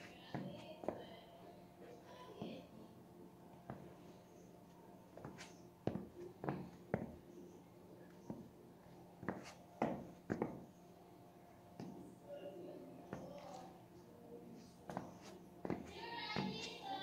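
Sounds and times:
footsteps on tile floor: 0:05.2 - 0:07.2, 0:09.2 - 0:10.7, 0:14.6 - 0:16.8.

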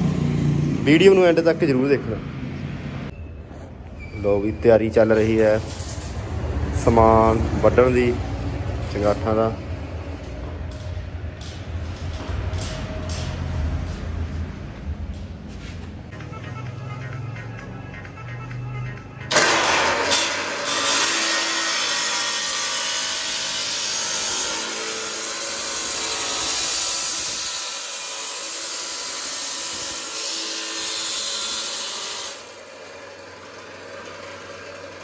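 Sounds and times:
chop saw cutting steel: 0:19.3 - 0:35.0
saw motor running: 0:19.3 - 0:35.0.

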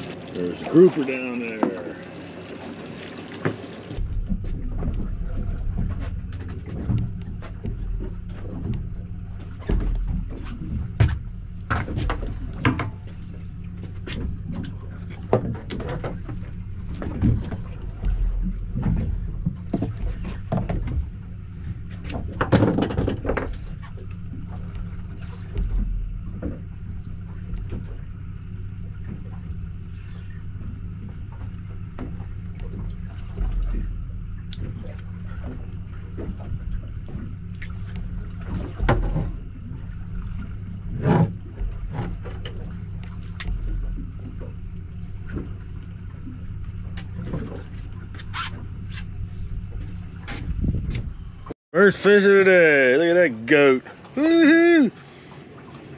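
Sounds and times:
outboard motor idling: 0:00.0 - 0:55.9
knocks and clatters: 0:22.0 - 0:23.7.

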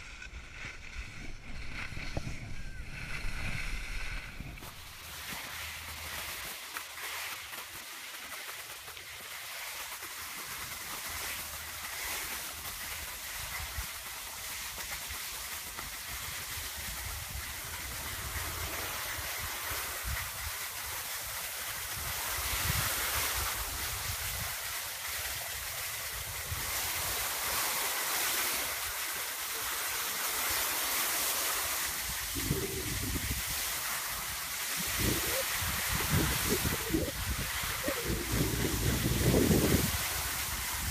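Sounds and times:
wind buffeting microphone: 0:00.0 - 0:05.0, 0:32.0 - 0:40.9
skis scraping over snow: 0:00.0 - 0:40.9.

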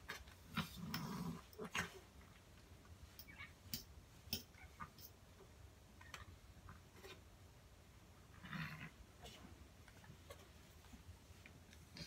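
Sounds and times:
cat growling: 0:00.1 - 0:02.0, 0:08.3 - 0:09.0.

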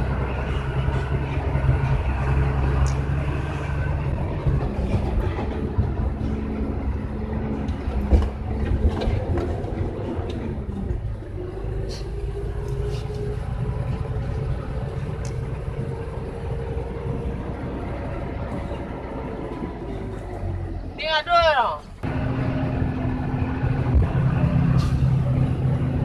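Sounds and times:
truck diesel engine running: 0:00.0 - 0:26.0
cab rattling and knocks: 0:04.0 - 0:11.0.

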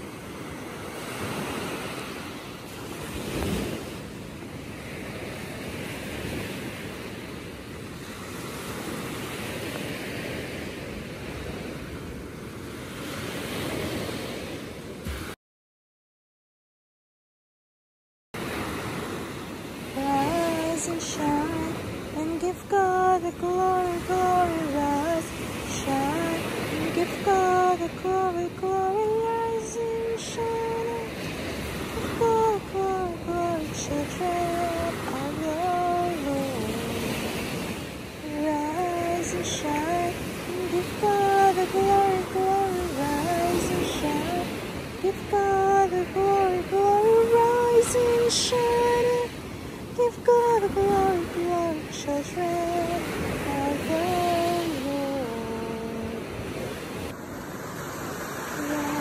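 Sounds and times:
small waves breaking on beach: 0:00.0 - 0:15.4, 0:18.4 - 0:59.0
person humming a slow tune: 0:20.0 - 0:31.2, 0:32.0 - 0:37.3, 0:38.2 - 0:49.3, 0:50.0 - 0:56.3, 0:58.6 - 0:59.0.

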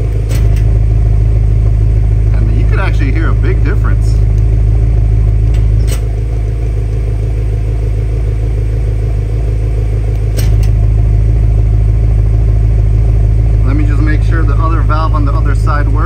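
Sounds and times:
car engine idling: 0:00.0 - 0:16.0
exhaust valve clicks: 0:00.1 - 0:00.8, 0:04.2 - 0:04.6, 0:05.2 - 0:06.2, 0:10.1 - 0:10.8.

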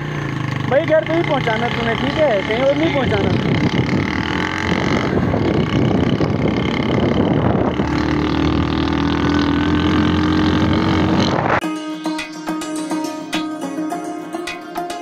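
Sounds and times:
motorcycle engine running: 0:00.0 - 0:11.6
wind on microphone: 0:03.0 - 0:11.6.

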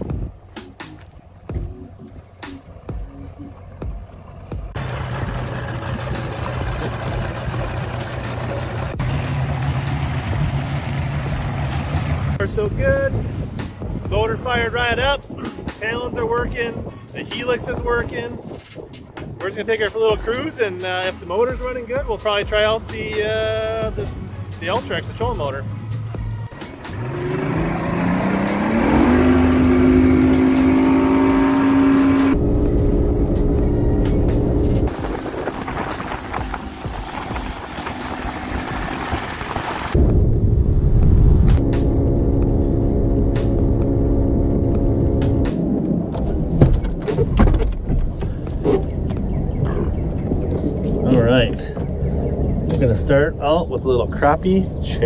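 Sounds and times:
outboard motor running: 0:01.3 - 0:12.4, 0:26.7 - 0:40.1
water churning: 0:03.6 - 0:12.4, 0:34.8 - 0:40.0.

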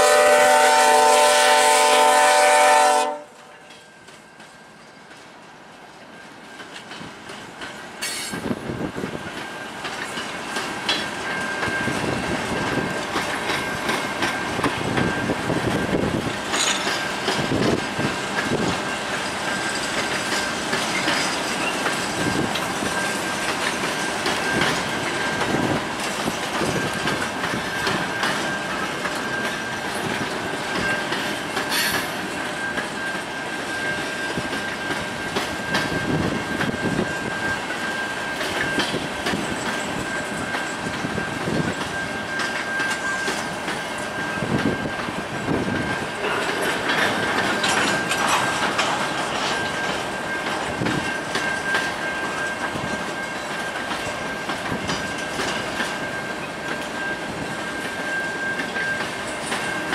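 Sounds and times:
freight train rumble: 0:00.0 - 0:59.9
train wheels clicking over rail joints: 0:03.4 - 0:59.9
high squeal: 0:24.4 - 0:59.9.

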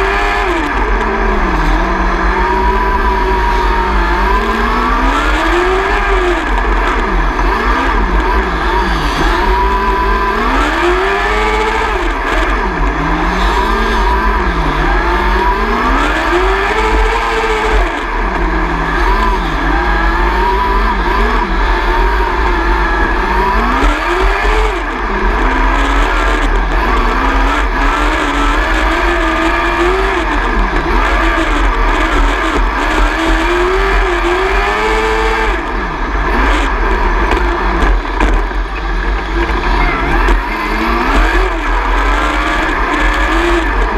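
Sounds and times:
motorcycle engine revving: 0:00.0 - 0:43.9
heavy low rumble: 0:35.3 - 0:43.9.

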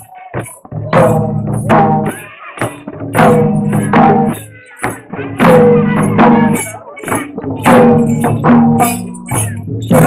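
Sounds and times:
hand drum beating: 0:00.3 - 0:10.0
metallic jingle: 0:03.1 - 0:10.0.

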